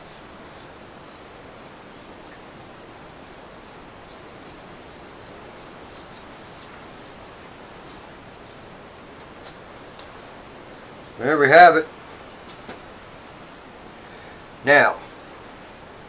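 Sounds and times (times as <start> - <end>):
brush strokes on wood: 0.0 - 8.6
steady background hiss: 0.0 - 16.0.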